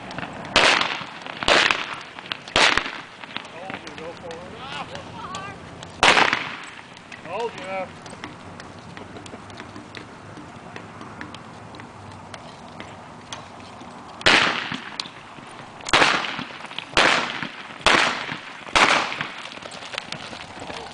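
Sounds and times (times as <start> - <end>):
faint hoofbeats: 6.8 - 14.2, 19.2 - 20.9.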